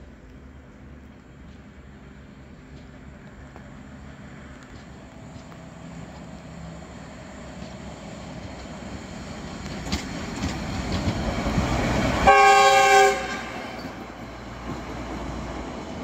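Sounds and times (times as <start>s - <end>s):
rail car wheel rumble: 0.0s - 16.0s
rail clicks: 0.2s - 16.0s
short multi-tone horn blast: 12.2s - 13.8s.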